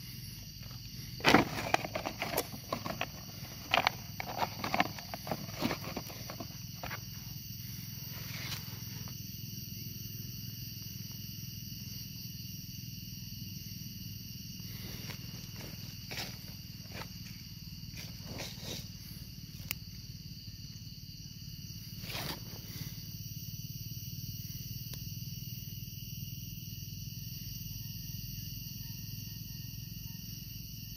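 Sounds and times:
insect drone: 0:00.0 - 0:30.9
rustles and scrapes: 0:00.6 - 0:07.4, 0:08.1 - 0:09.1, 0:14.7 - 0:19.0, 0:22.0 - 0:22.8.

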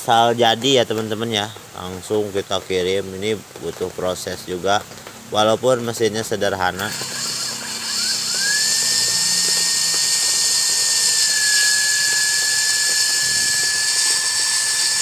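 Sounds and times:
cotton candy machine whining: 0:06.4 - 0:15.0.

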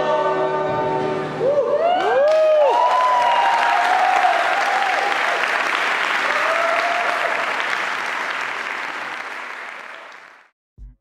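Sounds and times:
audience applauding: 0:01.9 - 0:10.5.

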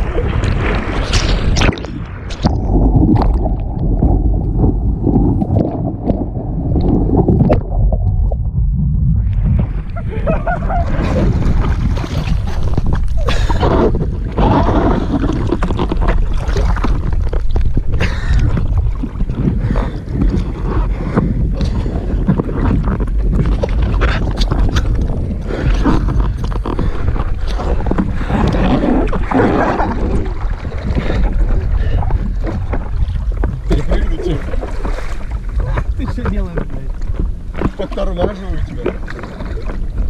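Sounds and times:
wind buffeting microphone: 0:00.0 - 0:40.0
water slapping against board: 0:10.7 - 0:40.0.

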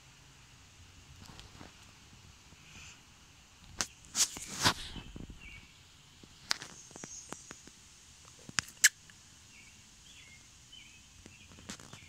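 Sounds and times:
faint bird chirps: 0:04.9 - 0:05.8, 0:06.6 - 0:07.6, 0:08.7 - 0:12.0
sharp clicks and rustles: 0:11.2 - 0:12.0.

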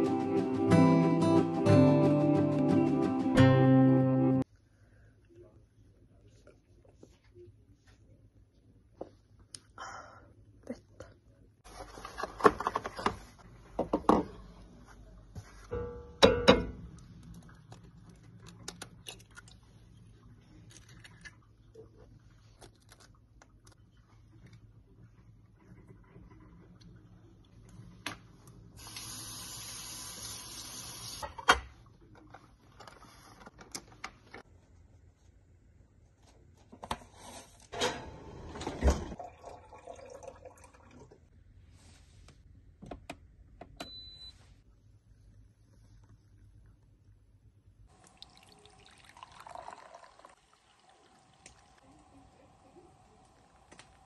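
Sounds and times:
water running: 0:28.8 - 0:31.2, 0:38.9 - 0:41.3, 0:47.9 - 0:54.0.

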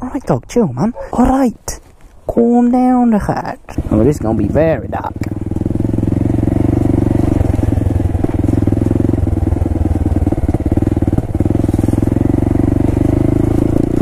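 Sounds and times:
motorcycle engine running: 0:03.7 - 0:14.0.

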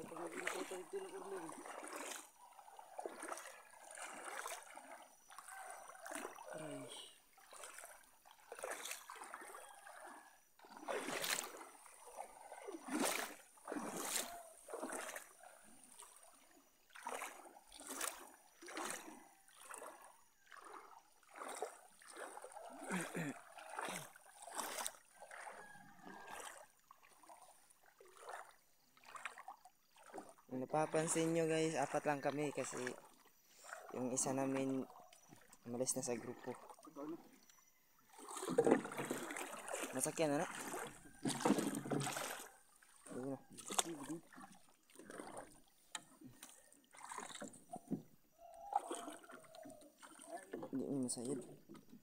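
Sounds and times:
water splashing around a boat: 0:00.0 - 0:52.0.

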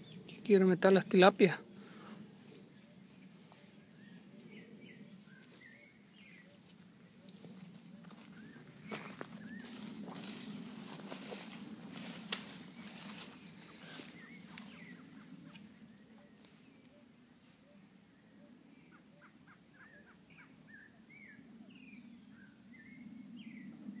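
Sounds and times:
small birds chirping: 0:00.0 - 0:10.4, 0:12.5 - 0:17.0
footsteps through grass: 0:03.3 - 0:15.7.

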